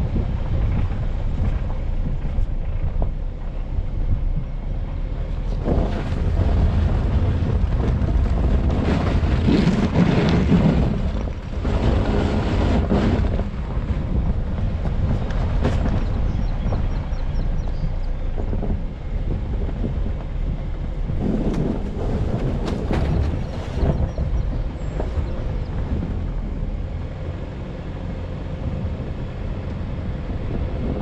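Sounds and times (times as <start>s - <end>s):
vehicle driving through sand: 0.0s - 31.0s
wind buffeting microphone: 0.0s - 31.0s.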